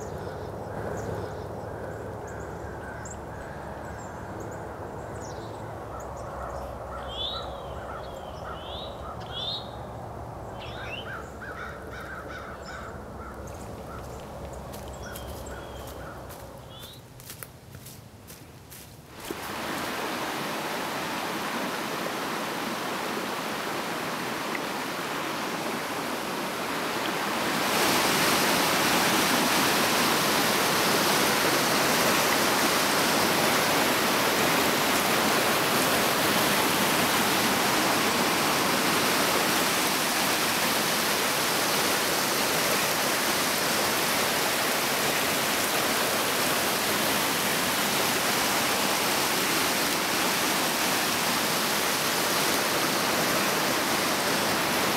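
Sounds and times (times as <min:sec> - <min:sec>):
water rushing over rocks: 0:19.1 - 0:54.9.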